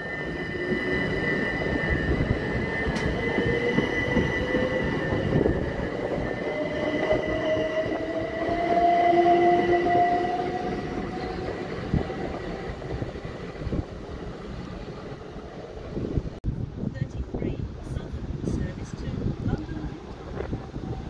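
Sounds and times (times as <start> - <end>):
electric train motors whining: 0.0 - 13.4
wheels rumbling on rail: 0.0 - 21.0.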